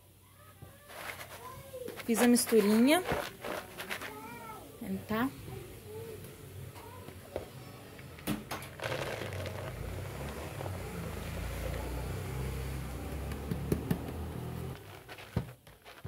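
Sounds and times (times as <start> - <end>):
soap flakes pouring rustle: 0.8 - 4.6, 8.7 - 12.8, 14.8 - 16.0
plastic knocking on plastic: 13.1 - 14.3.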